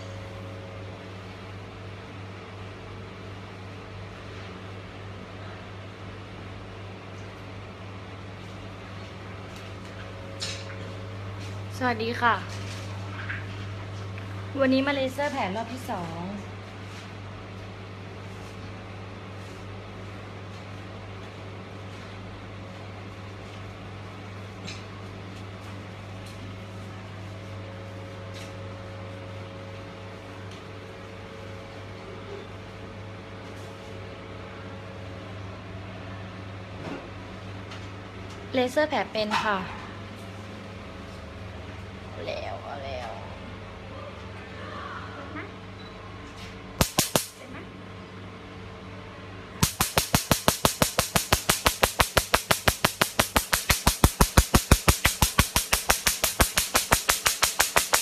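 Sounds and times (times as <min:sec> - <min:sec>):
low steady hum: 0:00.0 - 0:24.8
electrical machine hum: 0:00.0 - 0:58.0
laser handpiece snapping pulses: 0:46.8 - 0:47.4, 0:49.6 - 0:58.0.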